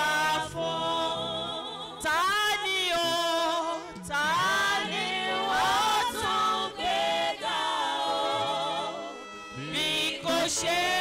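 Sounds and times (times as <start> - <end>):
voices singing praise song: 0.0 - 11.0
held low accompanying notes: 3.5 - 11.0.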